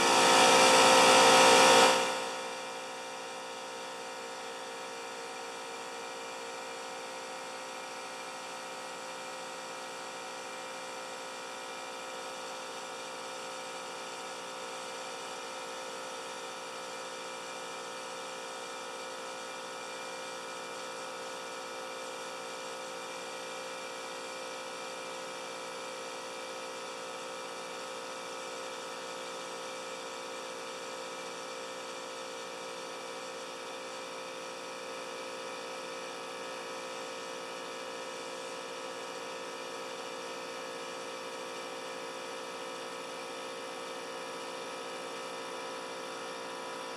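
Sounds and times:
air compressors running: 0.0s - 2.5s.

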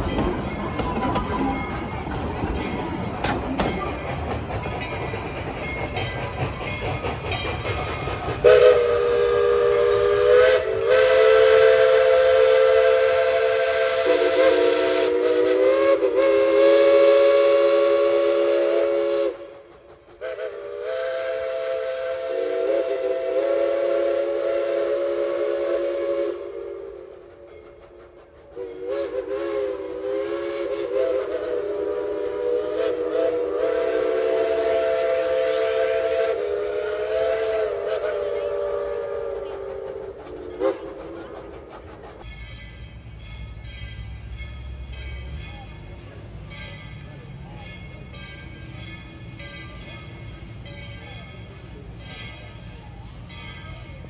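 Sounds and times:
train low rumble: 0.0s - 54.0s
steam whistle chord blasts: 8.4s - 41.2s.

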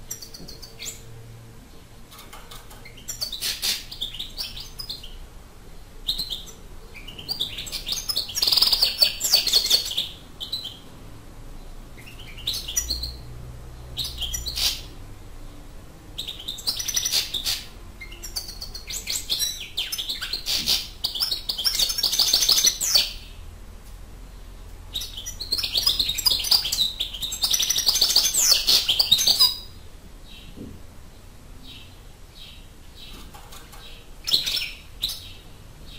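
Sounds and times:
goldfinch twittering song: 24.9s - 29.7s.

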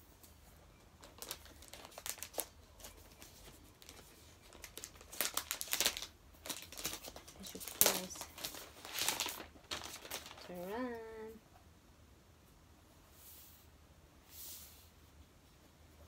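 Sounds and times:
plastic film crinkling: 1.0s - 11.1s.

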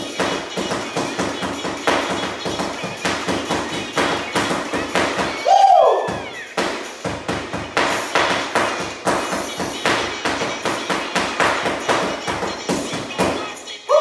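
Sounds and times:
spatulas drumming on a pillow: 0.0s - 5.5s, 6.1s - 13.4s
song with steady beat: 0.0s - 14.0s
sliding vocal whoop: 5.4s - 6.1s.

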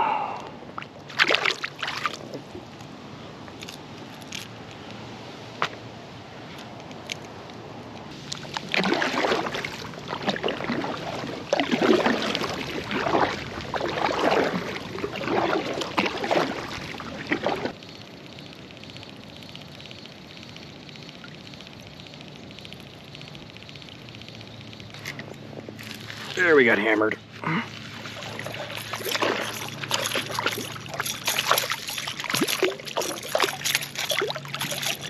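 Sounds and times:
faint steady background noise: 0.0s - 35.0s
water splashing against kayak: 0.7s - 2.7s, 8.1s - 18.0s, 27.4s - 35.0s.

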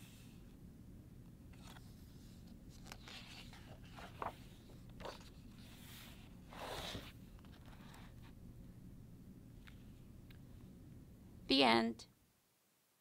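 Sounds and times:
book pages rustling: 1.5s - 8.3s.

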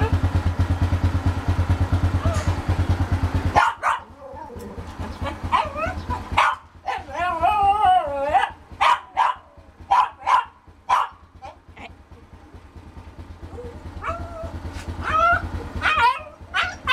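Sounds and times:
dog whining: 2.2s - 2.6s, 3.8s - 6.3s, 6.9s - 8.6s, 13.5s - 16.9s
dog yipping: 2.2s - 2.6s, 3.6s - 11.9s, 13.5s - 16.9s
dog barking: 3.5s - 4.6s, 5.2s - 7.4s, 8.3s - 11.9s, 13.6s - 16.9s.

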